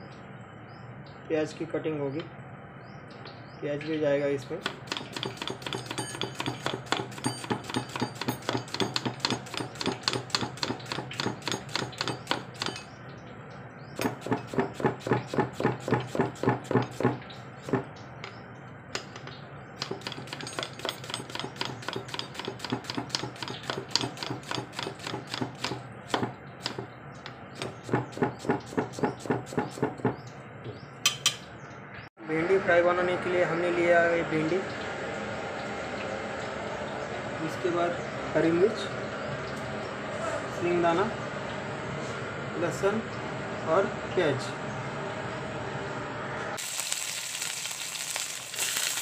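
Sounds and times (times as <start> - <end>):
knife chopping on wooden block: 4.6 - 12.8, 14.0 - 17.9, 19.8 - 26.9, 27.6 - 30.2.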